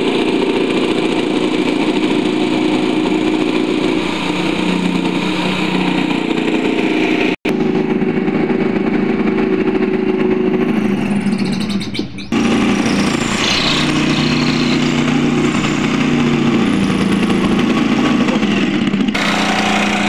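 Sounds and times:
jigsaw cutting plywood: 12.4s - 20.0s.

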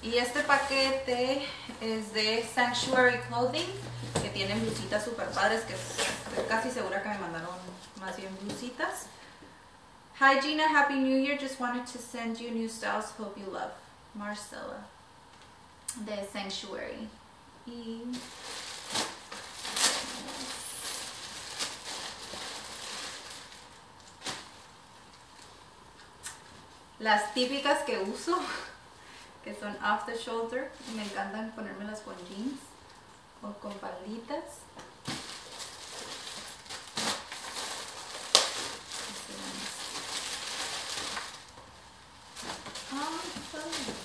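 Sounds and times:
plastic bag crinkling: 18.1s - 25.7s, 35.1s - 44.0s
sharp plastic crackle: 18.1s - 26.5s, 35.0s - 44.0s.

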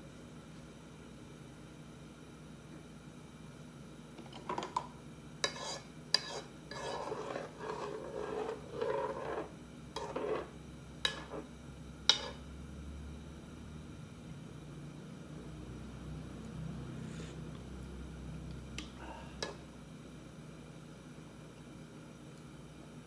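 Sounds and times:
utensil scraping inside a pot: 5.4s - 11.5s, 12.1s - 12.4s.

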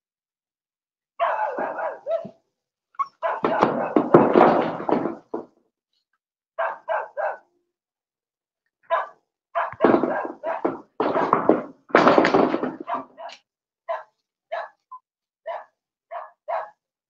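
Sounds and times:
dog barking: 1.2s - 2.4s, 3.0s - 4.6s, 6.6s - 7.6s, 8.8s - 11.5s, 12.6s - 16.9s.

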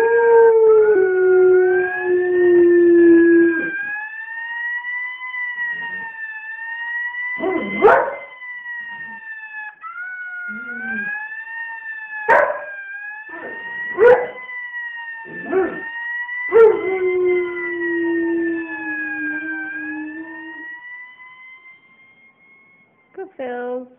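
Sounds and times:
fire engine siren wailing: 0.0s - 23.8s
dog howling and yelping: 7.4s - 8.3s, 9.1s - 11.3s.

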